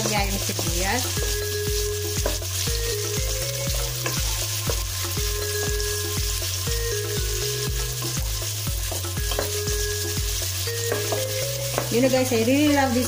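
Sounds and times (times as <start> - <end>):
onions sizzling in oil: 0.0 - 13.0
wooden spoon knocking on pot: 2.1 - 2.5, 8.8 - 9.8, 10.8 - 12.2.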